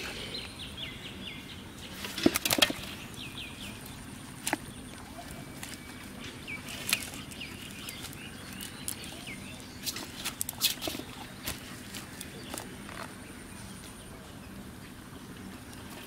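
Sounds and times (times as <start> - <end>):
bird chirping: 0.0 - 10.6
wet net and leaves rustling: 1.8 - 13.8.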